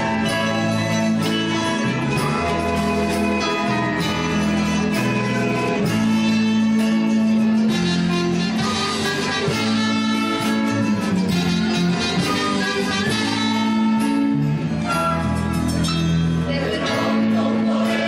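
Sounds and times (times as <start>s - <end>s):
guitar instrumental music: 0.0s - 18.0s.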